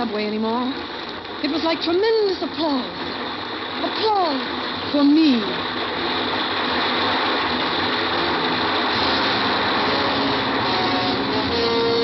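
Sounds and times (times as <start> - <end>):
subway train clattering roar: 3.9 - 12.0.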